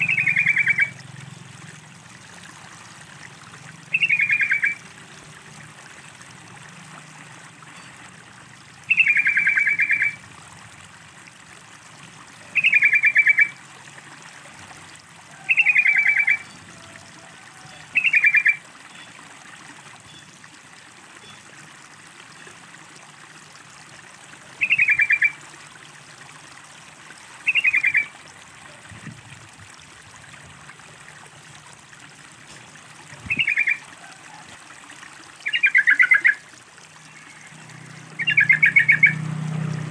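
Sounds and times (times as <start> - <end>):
bird singing rapid notes: 0.0 - 1.0, 3.9 - 4.8, 8.9 - 10.2, 24.6 - 25.4, 33.3 - 33.8, 38.2 - 39.2
running water trickling: 0.0 - 39.9.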